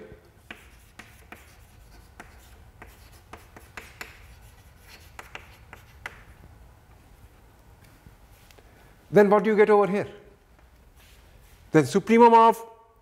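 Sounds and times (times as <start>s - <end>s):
chalk tapping and scratching on chalkboard: 0.4s - 6.4s.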